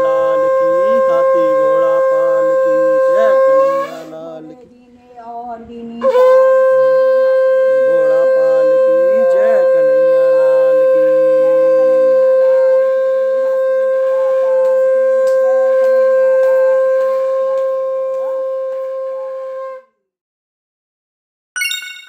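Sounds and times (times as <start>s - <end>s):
conch shell blown: 0.0s - 4.5s, 6.0s - 20.0s
short bright chime: 21.6s - 22.0s.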